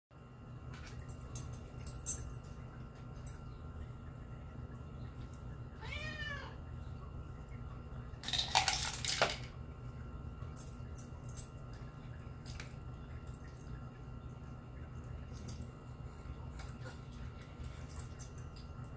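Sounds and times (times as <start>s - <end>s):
low steady hum: 0.2s - 18.9s
cat meowing: 5.8s - 6.6s
plastic cups clattering: 8.2s - 9.5s.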